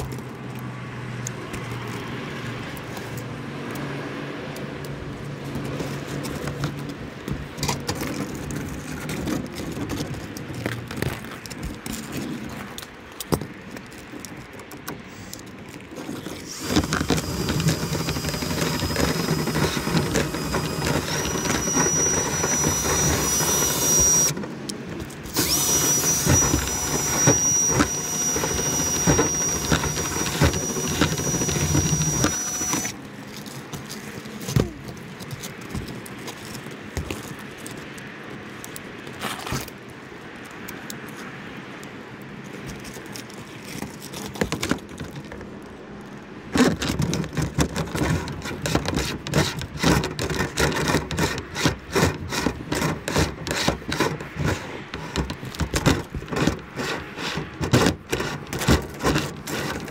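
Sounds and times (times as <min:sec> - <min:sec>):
brush scraping in duct: 0:15.1 - 0:34.8, 0:46.5 - 0:59.9
power drill motor whine: 0:16.4 - 0:33.0
rods rattling: 0:16.4 - 0:33.0.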